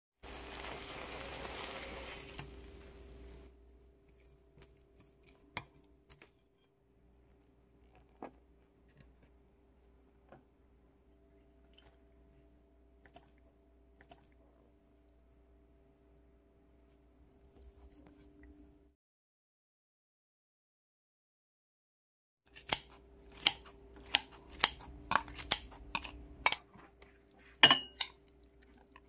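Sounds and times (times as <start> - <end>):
pancake sizzling in oil: 0.2 - 3.5
metal spoon clinking glass bowl: 27.6 - 28.2.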